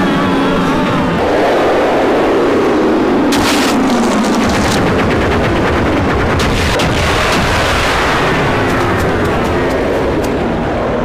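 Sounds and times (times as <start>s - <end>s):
explosion rumble: 3.2s - 10.6s
sharp crackling bangs: 3.3s - 10.4s.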